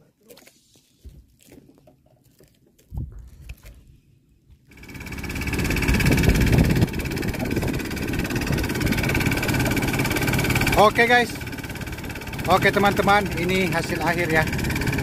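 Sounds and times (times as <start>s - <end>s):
boat engine running: 4.7s - 15.0s.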